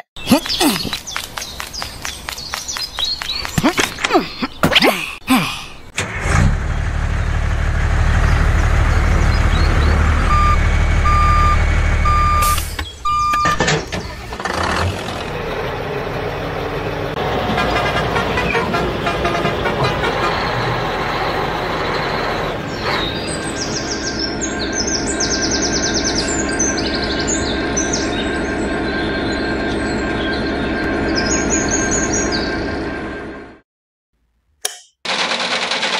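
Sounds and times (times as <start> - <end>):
birds chirping: 0.0 - 5.9, 8.2 - 14.2, 19.5 - 32.8
truck diesel engine running: 6.0 - 33.6
reversing beeper: 10.2 - 13.6.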